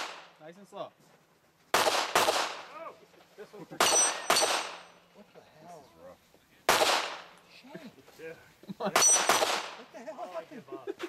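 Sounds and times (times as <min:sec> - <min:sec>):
gunshots: 0:00.0 - 0:00.4, 0:01.7 - 0:02.8, 0:03.8 - 0:05.0, 0:06.7 - 0:07.3, 0:08.9 - 0:09.9.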